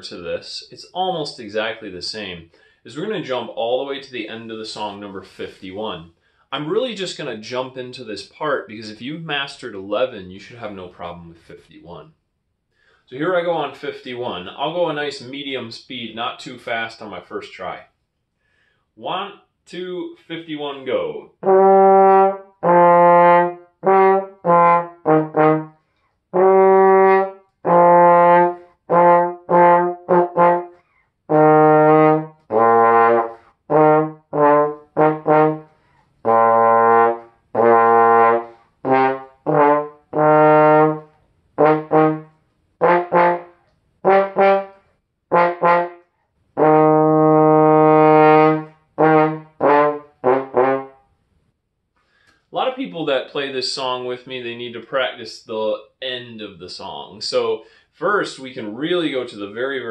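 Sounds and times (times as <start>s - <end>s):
trombone playing: 21.4s - 51.0s.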